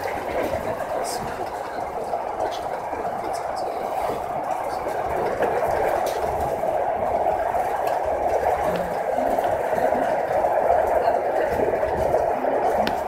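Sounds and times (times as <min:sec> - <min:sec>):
train running inside carriage: 0:00.0 - 0:13.0.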